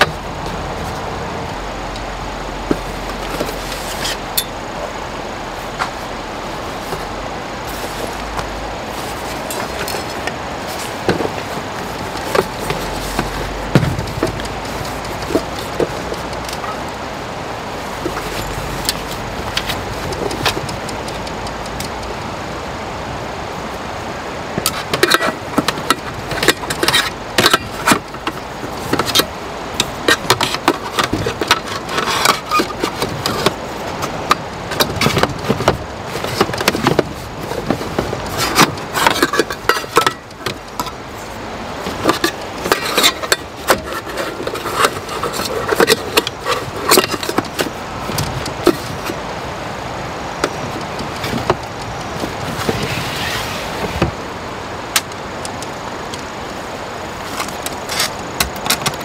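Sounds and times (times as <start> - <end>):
cloth pouches rustling: 5.5 - 16.8
pots clinking against drawer: 34.2 - 41.0.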